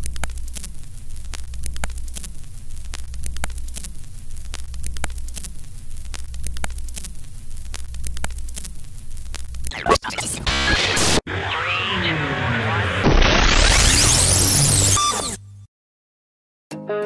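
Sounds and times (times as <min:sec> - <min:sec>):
clicks and pops: 0:00.0 - 0:10.9
crackling static: 0:00.0 - 0:15.4.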